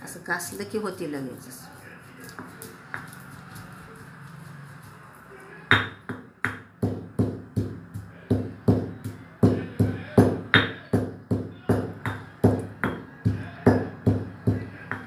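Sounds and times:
pestle pounding: 0:05.7 - 0:15.0
pestle grinding in stone mortar: 0:05.8 - 0:15.0.

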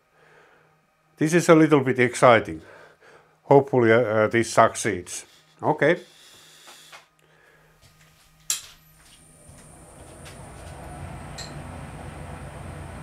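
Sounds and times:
faint high whine: 0:00.0 - 0:13.0
milling machine humming: 0:09.0 - 0:13.0.

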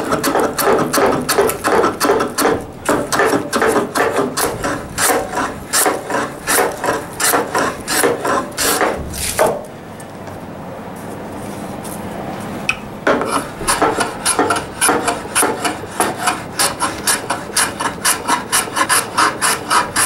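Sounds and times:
hand plane shaving wood: 0:00.0 - 0:09.5, 0:13.1 - 0:20.0.

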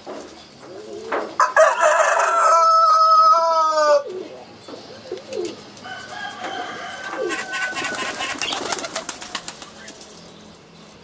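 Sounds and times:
pigeons cooing: 0:00.4 - 0:09.8
higher bird calls: 0:03.7 - 0:10.0.

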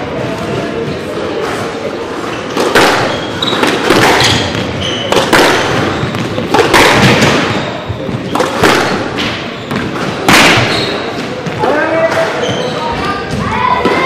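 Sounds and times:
shoes squeaking on wooden floor: 0:00.7 - 0:14.0
squash ball cracking off walls: 0:02.5 - 0:12.3.

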